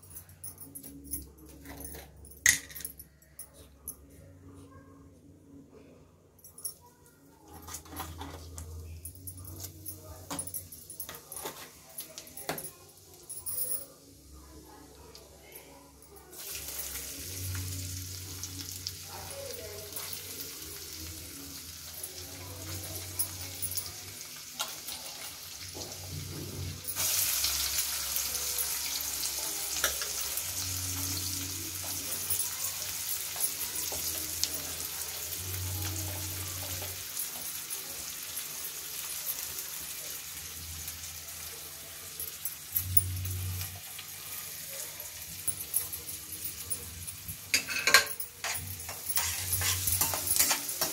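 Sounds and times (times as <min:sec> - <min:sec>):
small clinks: 0:00.0 - 0:04.1, 0:07.5 - 0:14.0, 0:45.3 - 0:50.9
garlic and onions sizzling in oil: 0:16.3 - 0:50.9.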